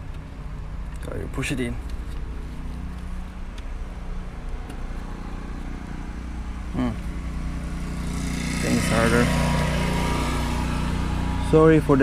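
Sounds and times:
lawn mower engine running: 0:04.8 - 0:12.0.

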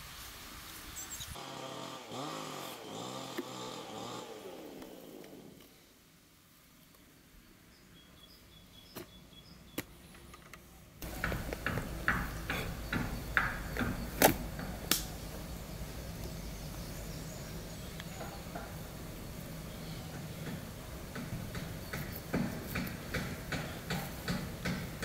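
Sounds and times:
background noise: 0:00.0 - 0:25.0
sharp clicks and knocks: 0:09.8 - 0:15.4.

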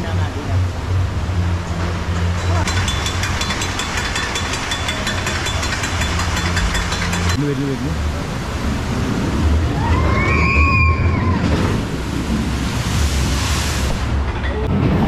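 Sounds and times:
steady rushing rumbling noise: 0:00.0 - 0:15.0
big water splash: 0:07.4 - 0:15.0.

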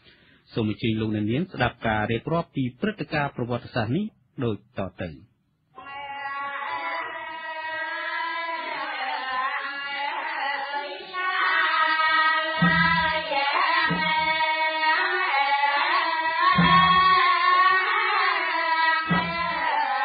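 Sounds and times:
low drum beats: 0:12.6 - 0:13.3, 0:13.9 - 0:14.4, 0:16.5 - 0:17.2, 0:19.0 - 0:19.7.

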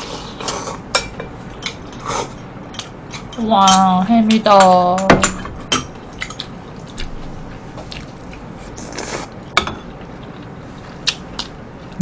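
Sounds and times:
chewing and mouth sounds: 0:06.0 - 0:12.0.

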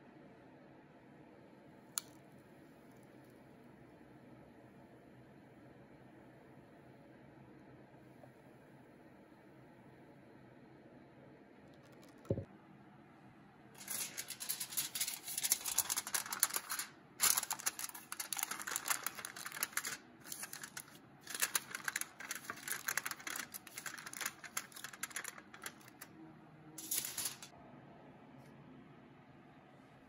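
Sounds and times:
aluminium foil crinkling: 0:13.8 - 0:26.1.

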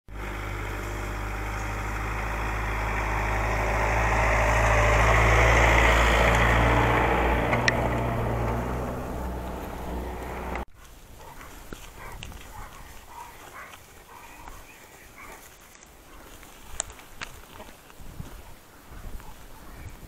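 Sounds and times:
truck engine idling: 0:00.1 - 0:10.7.

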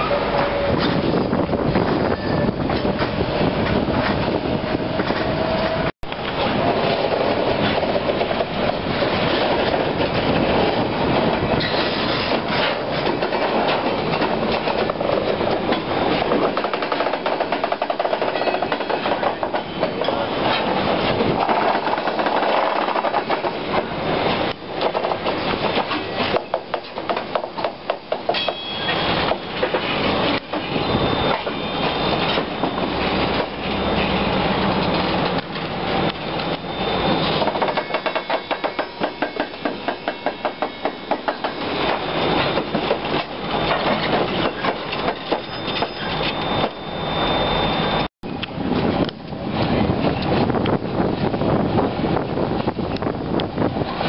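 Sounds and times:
freight train wheels rumbling on rail: 0:00.0 - 0:54.0
wheels clicking over rail joints: 0:06.1 - 0:31.6.

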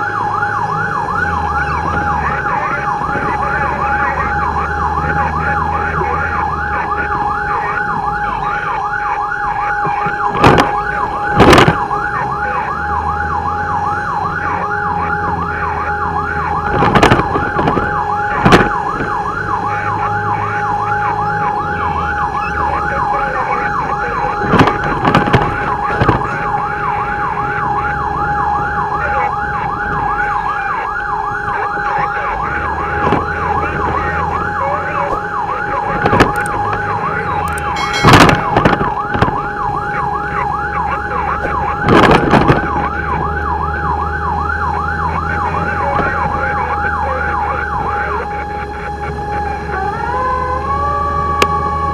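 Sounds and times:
electronic siren yelping: 0:00.0 - 0:51.9
sharp loud sounds: 0:37.5 - 0:39.3.

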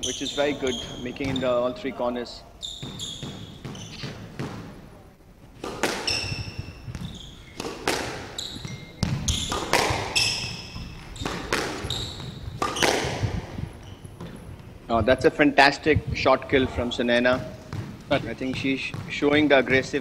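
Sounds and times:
shoes squeaking on wooden floor: 0:00.0 - 0:04.8, 0:05.6 - 0:14.8, 0:16.1 - 0:20.0
squash ball cracking off rackets: 0:05.6 - 0:14.7.

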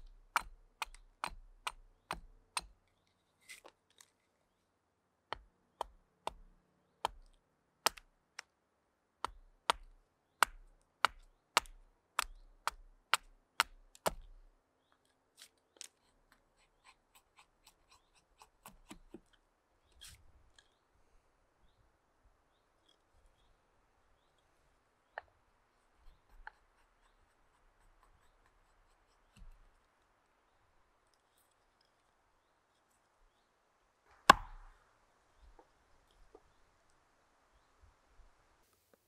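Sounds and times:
light hatchet taps on wood: 0:00.0 - 0:02.7, 0:09.2 - 0:14.3, 0:34.3 - 0:34.7
hatchet chopping wood: 0:00.0 - 0:02.8, 0:05.3 - 0:08.1, 0:09.2 - 0:14.4, 0:16.6 - 0:19.2, 0:34.1 - 0:34.8.

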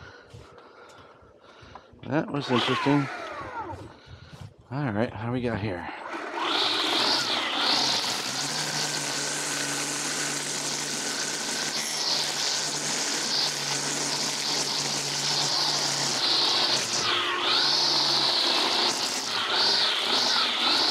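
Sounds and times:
electric motor whirring: 0:02.4 - 0:04.0, 0:06.0 - 0:20.9.

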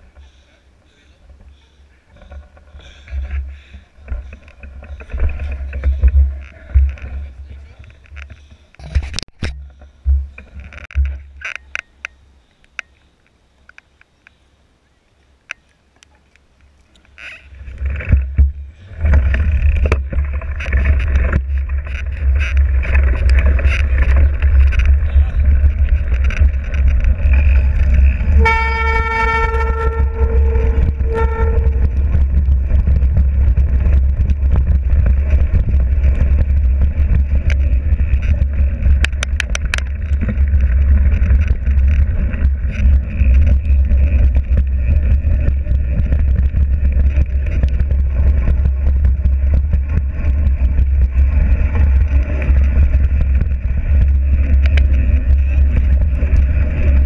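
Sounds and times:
low rumble: 0:17.6 - 0:57.0
vehicle horn: 0:28.2 - 0:32.2.

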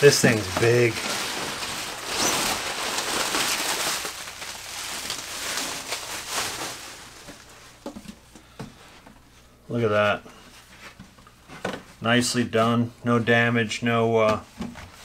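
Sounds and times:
bubble wrap crinkling: 0:00.0 - 0:08.3.

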